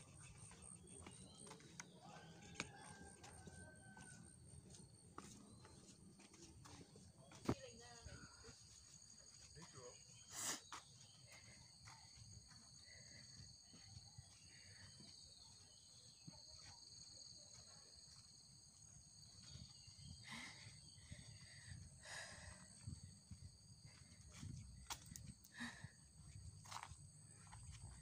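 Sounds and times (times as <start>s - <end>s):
footsteps on dirt trail: 0.0s - 9.5s, 21.2s - 28.0s.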